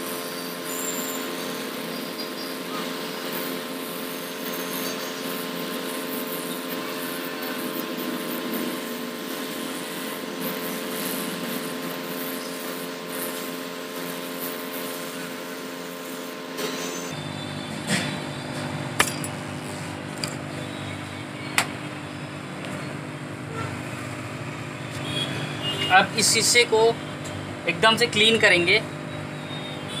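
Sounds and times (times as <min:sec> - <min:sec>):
hot-air gun blowing: 0:00.0 - 0:20.8.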